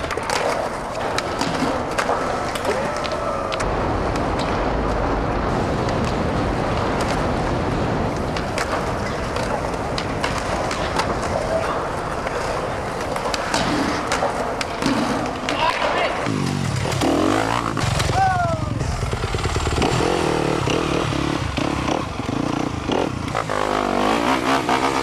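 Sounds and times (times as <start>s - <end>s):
skateboard clacking on ground: 0.0s - 5.1s, 5.7s - 17.0s
skateboard wheels rolling on concrete: 0.0s - 25.0s.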